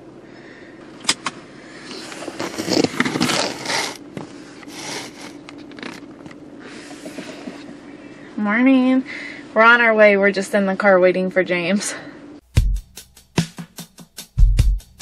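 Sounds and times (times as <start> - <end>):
seatbelt webbing rustling: 1.8 - 7.7.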